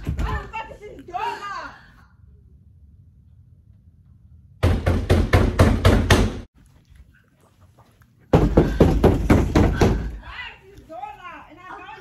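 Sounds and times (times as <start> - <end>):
fist pounding on wooden door: 4.6 - 6.4, 8.3 - 10.1.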